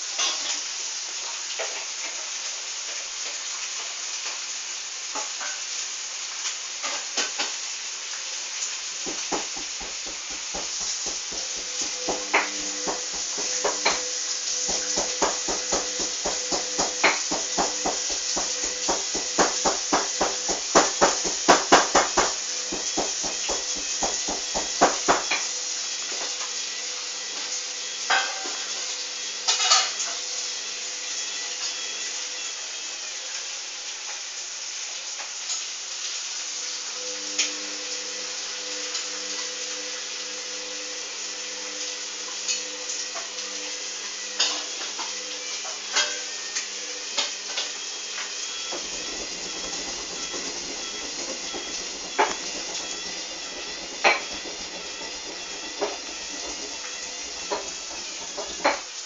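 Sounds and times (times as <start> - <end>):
steady hiss and hum: 0.0 - 59.0
washing machine drum knocking: 9.0 - 25.4, 48.7 - 58.9.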